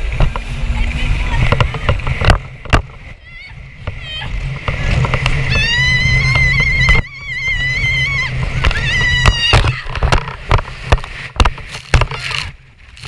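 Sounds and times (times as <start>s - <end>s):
jet ski engine hum: 0.0s - 13.0s
thumps and splashes: 0.0s - 13.0s
woman screaming: 5.4s - 10.0s.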